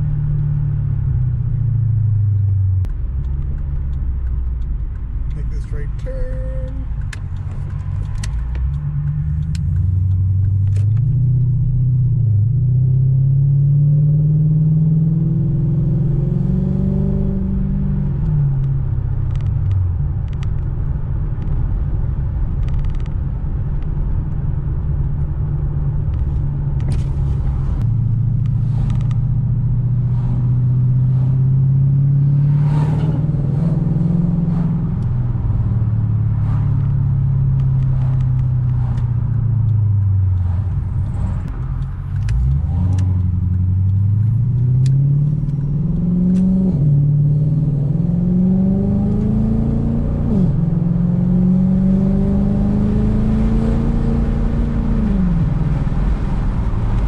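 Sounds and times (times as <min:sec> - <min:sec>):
car engine accelerating: 0:00.0 - 0:57.0
light clicks: 0:37.6 - 0:46.5.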